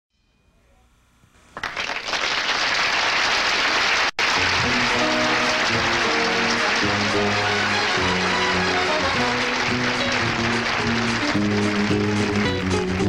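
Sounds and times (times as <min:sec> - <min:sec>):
audience applause: 0:01.6 - 0:13.0
band playing: 0:04.2 - 0:13.0.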